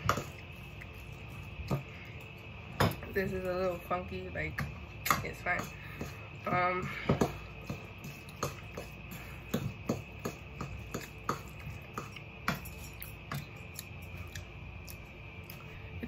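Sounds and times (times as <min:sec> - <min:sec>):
faint steady hum: 0:00.0 - 0:16.0
fork knocking and scraping bowl: 0:04.6 - 0:13.6.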